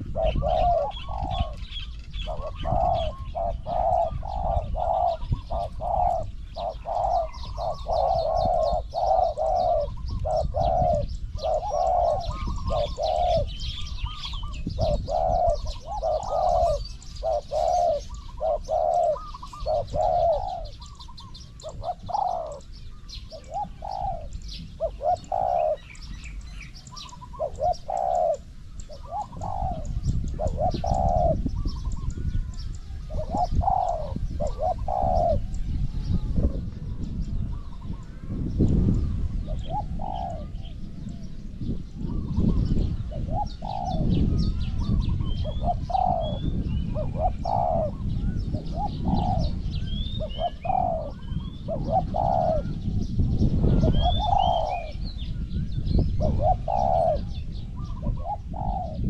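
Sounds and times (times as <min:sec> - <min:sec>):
doves cooing: 0:00.0 - 0:59.0.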